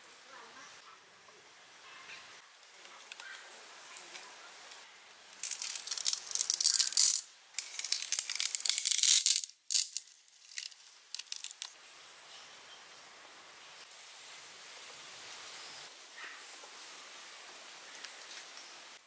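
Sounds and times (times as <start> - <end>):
wooden sticks rattling and scraping: 5.4 - 11.7.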